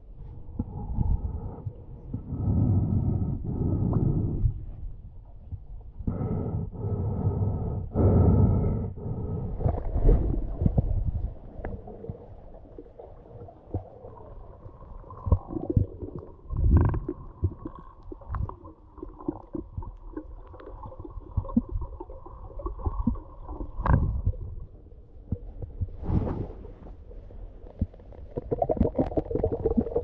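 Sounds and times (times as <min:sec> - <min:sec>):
underwater rumble of moving water: 0:00.0 - 0:30.0
underwater clicks and knocks: 0:22.7 - 0:24.6.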